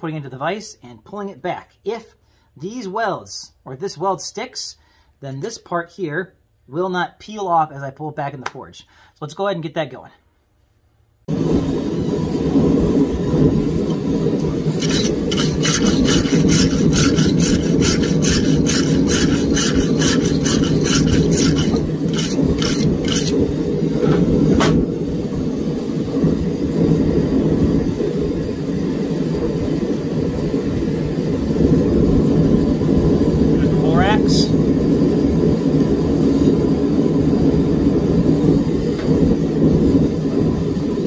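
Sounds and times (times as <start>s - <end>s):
gas forge burner rushing: 11.3s - 41.0s
wire brush scrubbing hot steel: 14.4s - 24.3s.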